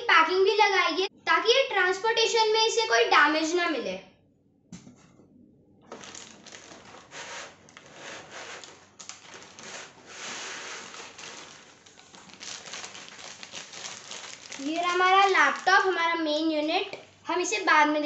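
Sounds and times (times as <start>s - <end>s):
plastic bag crinkling: 5.9s - 17.0s.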